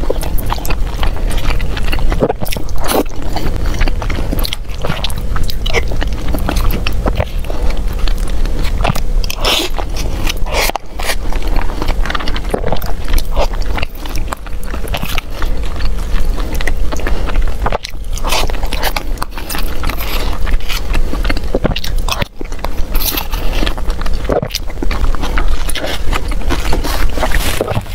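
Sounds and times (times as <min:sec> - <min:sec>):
person chewing food: 0:00.0 - 0:27.9.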